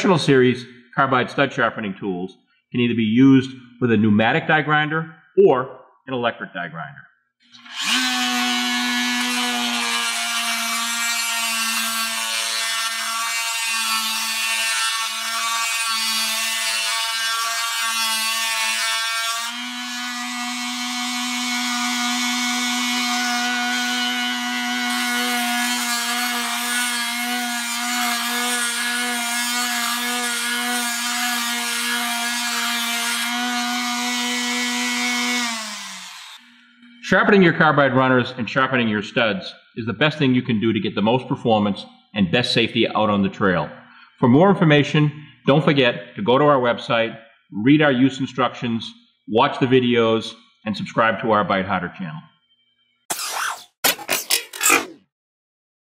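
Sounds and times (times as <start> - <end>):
die grinder motor whine: 7.6 - 9.9, 32.3 - 37.0.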